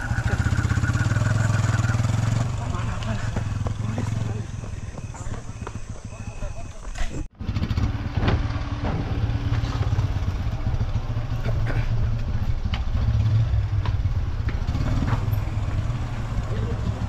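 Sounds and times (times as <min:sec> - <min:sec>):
motorcycle engine idling: 0:00.0 - 0:17.0.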